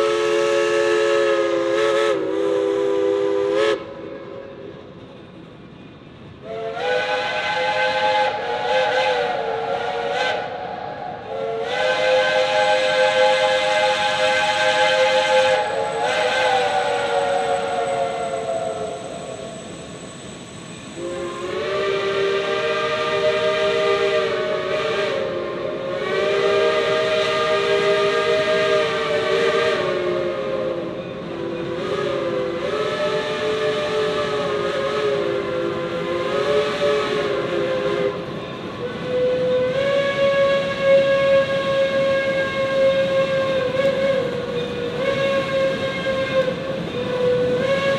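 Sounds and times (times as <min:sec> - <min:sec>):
steam locomotive whistles: 0:00.0 - 0:05.0, 0:06.4 - 0:47.9.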